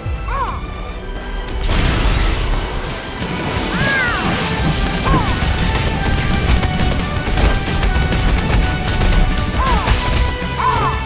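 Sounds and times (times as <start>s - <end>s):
dramatic background music: 0.0s - 11.0s
rock crashing and crumbling: 4.2s - 10.4s.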